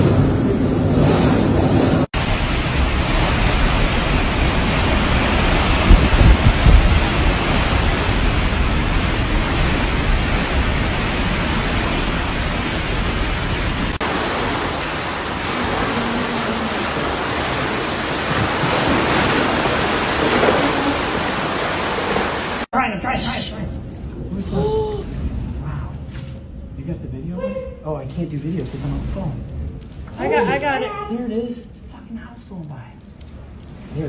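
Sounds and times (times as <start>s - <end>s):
gusts buffeting microphone: 0.0s - 22.7s
wind and rain blowing hard: 0.0s - 22.7s
floodwater rushing: 2.2s - 22.7s.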